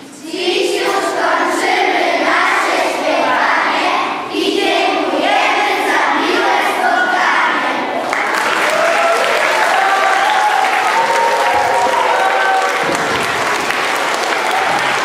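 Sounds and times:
children's choir singing a carol: 0:00.0 - 0:08.2.

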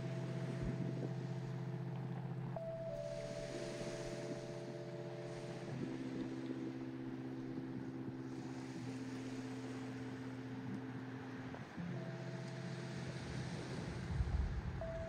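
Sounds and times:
soft background music chords: 0:00.0 - 0:15.0.

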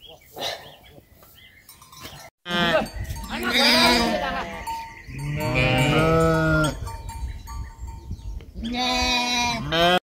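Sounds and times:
goats bleating: 0:02.5 - 0:06.8.

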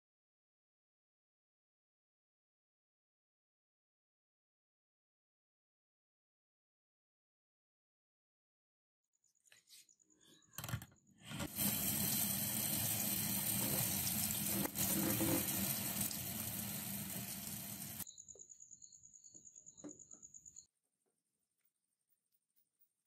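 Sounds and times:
tap water running into sink: 0:11.3 - 0:18.0.

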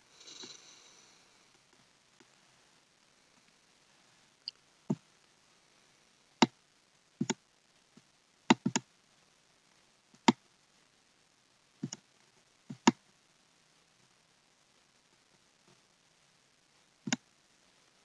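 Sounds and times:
computer mouse clicking: 0:08.5 - 0:08.8, 0:11.8 - 0:12.0, 0:12.7 - 0:13.0.

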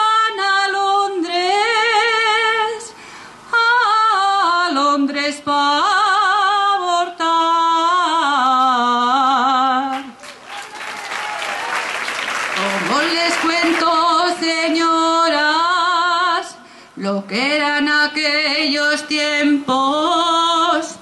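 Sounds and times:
woman singing unaccompanied: 0:00.0 - 0:10.2, 0:12.6 - 0:21.0
singer breathing: 0:02.9 - 0:03.5, 0:16.6 - 0:17.0.

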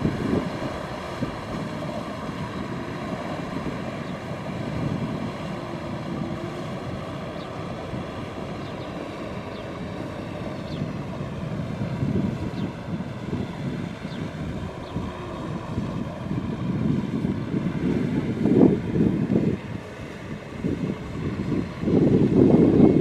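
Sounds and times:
tractor diesel engine under load: 0:00.0 - 0:09.2.

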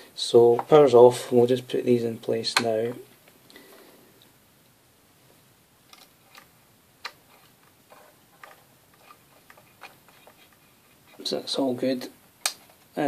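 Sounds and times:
fuses clicking into clips: 0:05.9 - 0:07.5, 0:12.4 - 0:12.8.

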